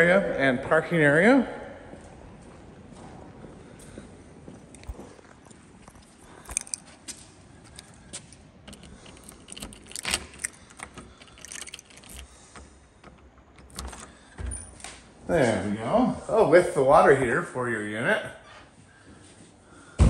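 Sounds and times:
keys jangling in a door lock: 4.8 - 14.8
short metallic rattles: 8.6 - 14.8.

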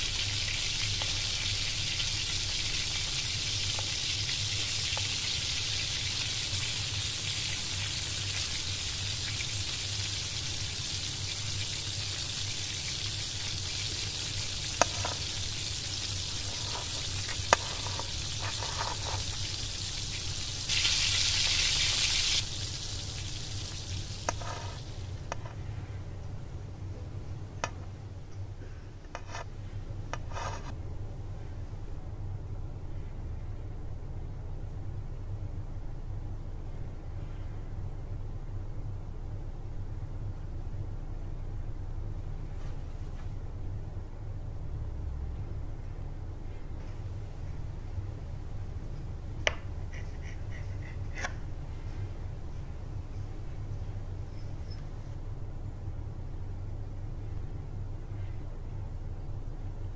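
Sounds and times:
omelette sizzling in pan: 0.0 - 25.7
toasted bread crackling: 0.0 - 25.7.

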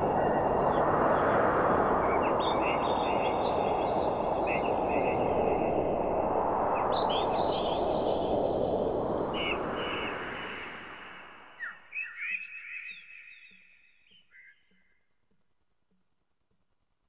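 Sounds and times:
small birds chirping: 11.6 - 15.0.

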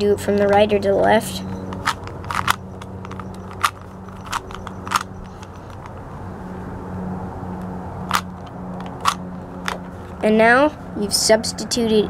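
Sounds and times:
low hum: 0.0 - 12.0
puzzle cube clicking: 1.5 - 5.9.

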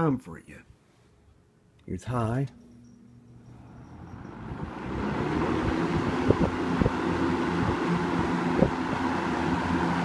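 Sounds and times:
low motor hum: 2.5 - 10.0
box fan rush of air: 2.8 - 10.0.

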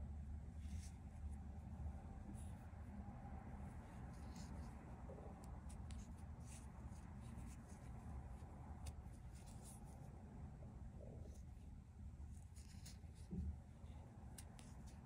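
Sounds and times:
low room hum: 0.0 - 15.0
crochet hook scratching yarn: 0.6 - 2.9, 3.6 - 10.1, 12.3 - 15.0.

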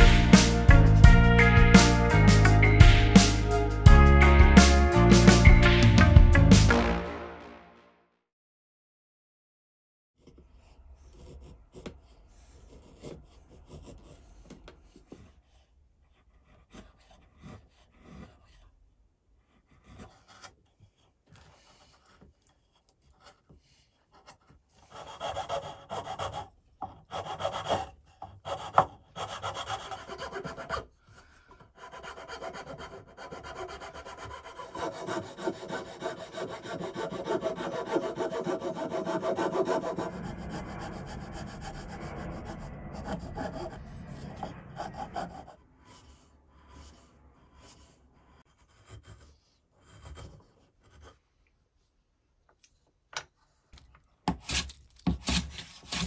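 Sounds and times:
rasp scraping wood: 10.2 - 18.8, 19.4 - 43.8, 44.4 - 51.2, 54.3 - 56.0
paring strokes on wood: 21.3 - 51.2, 54.3 - 56.0
hand plane shaving wood: 22.9 - 43.8, 54.3 - 56.0.

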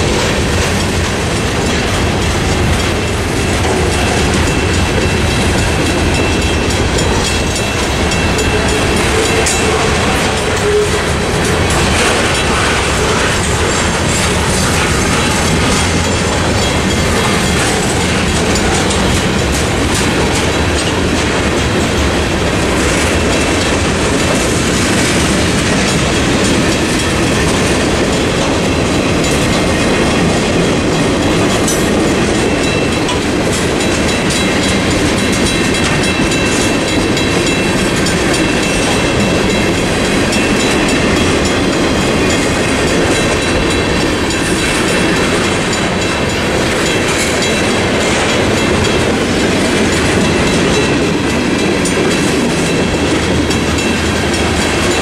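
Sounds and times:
freight train rolling past: 0.0 - 55.0
wheels clattering over rail joints: 0.0 - 55.0.

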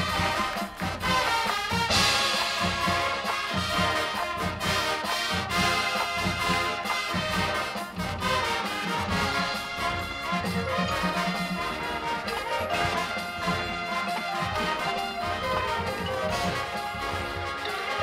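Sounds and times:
brass chords: 0.0 - 18.0
drumline steady low beat: 0.0 - 18.0.

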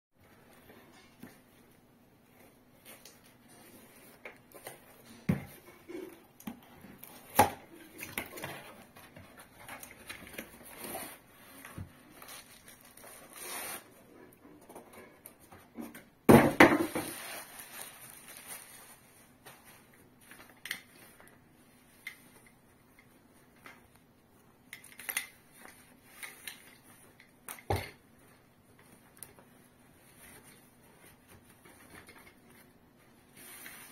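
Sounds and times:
cardboard box and bag rustling: 8.3 - 13.9, 16.7 - 20.4.

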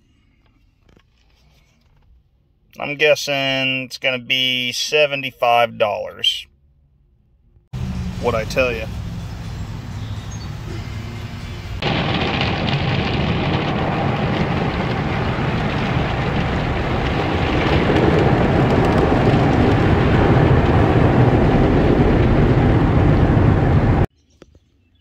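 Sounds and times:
water spraying on glass: 11.8 - 22.7.

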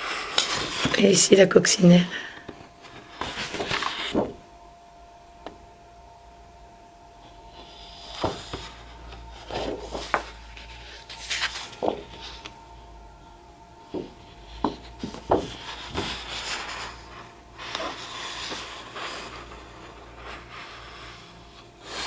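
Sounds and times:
paper sheets rustling: 2.8 - 4.4, 8.0 - 12.6, 14.7 - 20.8.

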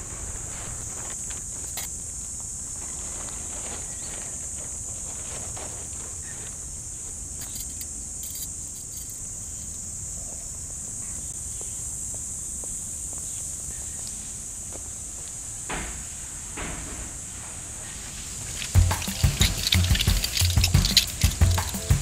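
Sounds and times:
insects chorus: 0.0 - 22.0.

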